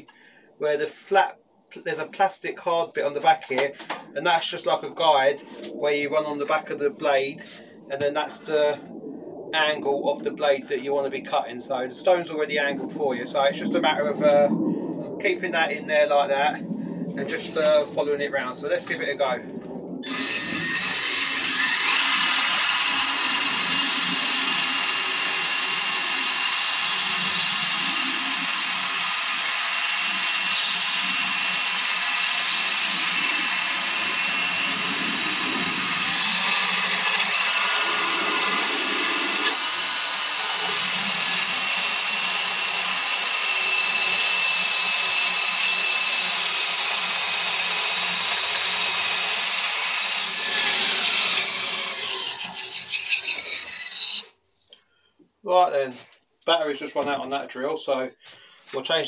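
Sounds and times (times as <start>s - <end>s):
drill motor whine: 20.0s - 54.3s
stone grinding on metal: 50.4s - 54.3s.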